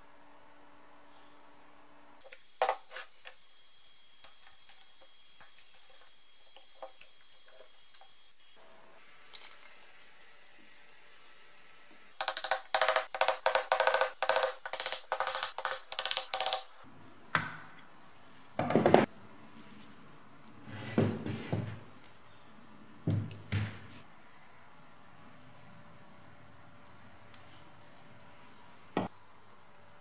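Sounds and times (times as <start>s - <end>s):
tools set on a bench: 9.2s - 9.8s, 12.2s - 16.8s
hammer tapping a screwdriver: 12.2s - 16.7s.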